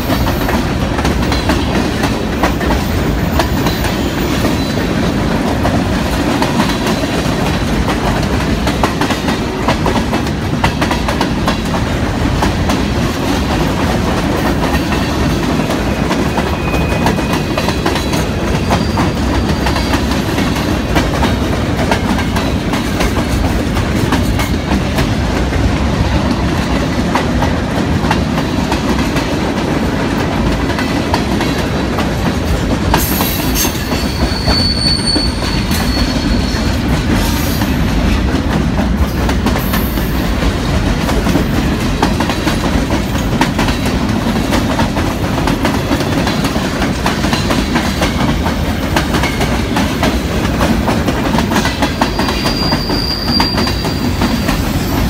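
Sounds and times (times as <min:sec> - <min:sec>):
freight train rumbling past: 0:00.0 - 0:55.0
high wheel squeal: 0:16.4 - 0:17.6, 0:18.5 - 0:19.9, 0:33.4 - 0:36.8, 0:52.0 - 0:55.0.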